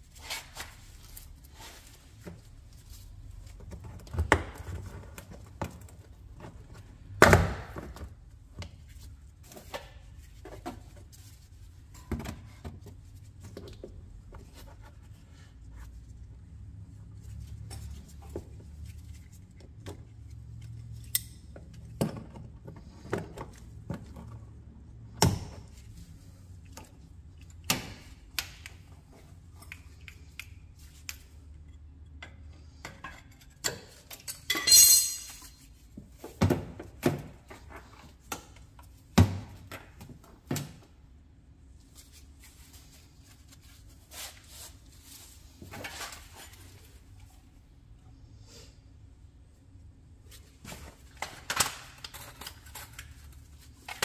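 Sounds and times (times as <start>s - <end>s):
metal tools clinking: 34.1s - 35.6s.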